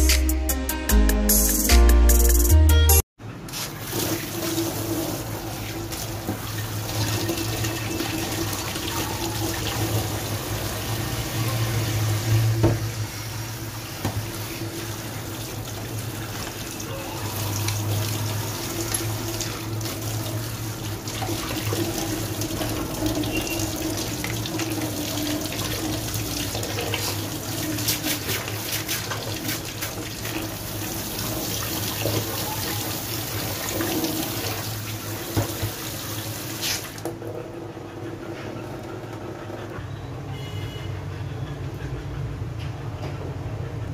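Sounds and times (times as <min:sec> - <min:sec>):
tap water running into sink: 0:03.8 - 0:13.1, 0:13.8 - 0:37.4.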